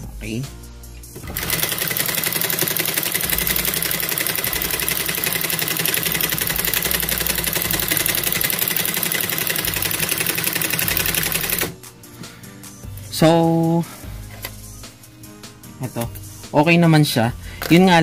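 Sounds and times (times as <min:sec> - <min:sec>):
sewing machine rattling: 0:01.2 - 0:11.7.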